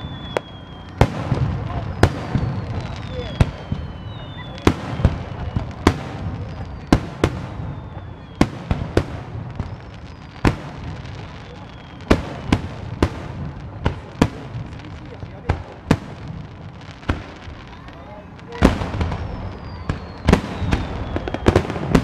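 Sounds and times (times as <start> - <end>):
falling whistles: 0.0 - 12.4, 17.5 - 22.0
fireworks bangs: 0.0 - 22.0.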